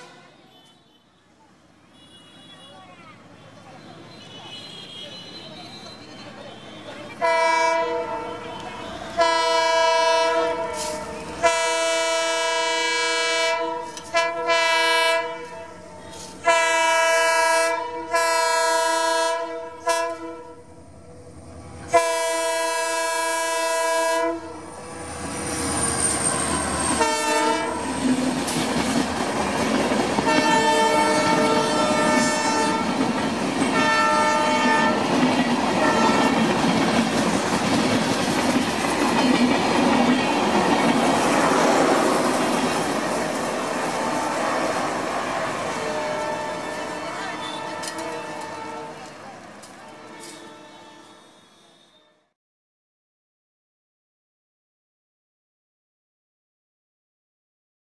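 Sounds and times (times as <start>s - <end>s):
locomotive air horn blasts: 0.0s - 1.0s, 4.2s - 20.7s, 21.9s - 24.8s, 25.6s - 28.0s, 30.2s - 33.0s, 33.7s - 35.2s, 35.8s - 36.5s, 45.6s - 49.2s, 49.8s - 52.3s
train wheels clattering over rail joints: 35.1s - 43.6s.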